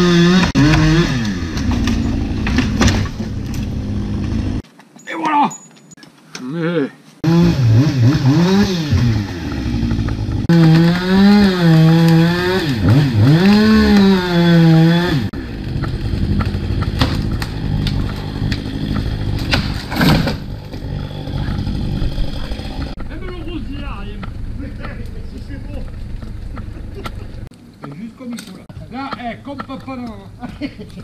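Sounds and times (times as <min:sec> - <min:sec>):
chainsaw revving: 0:00.0 - 0:04.6, 0:07.2 - 0:23.2.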